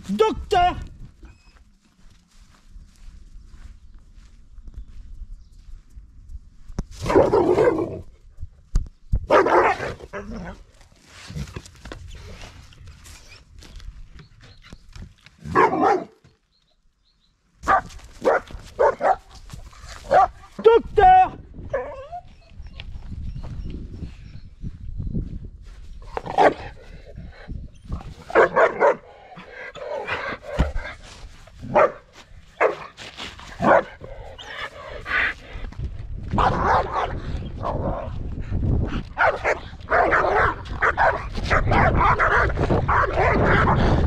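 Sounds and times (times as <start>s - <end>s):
dog barking: 9.3s - 10.0s, 15.5s - 16.2s, 17.6s - 19.3s, 20.1s - 20.5s, 26.3s - 26.7s, 28.3s - 29.1s, 31.7s - 32.9s, 33.6s - 34.0s, 36.4s - 37.2s, 39.2s - 43.8s.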